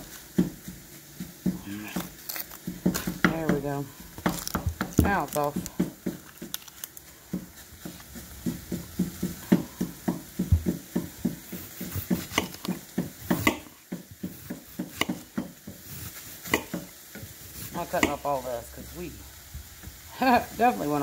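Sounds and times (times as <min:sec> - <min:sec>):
knife slicing onion: 0:00.0 - 0:18.3
onion skin crackling: 0:00.0 - 0:20.1
onion knocking on marble countertop: 0:07.3 - 0:16.9.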